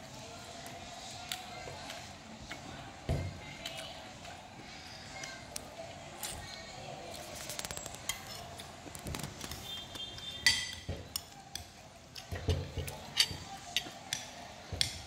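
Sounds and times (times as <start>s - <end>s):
metal spoon clinking on plate: 10.2s - 15.0s.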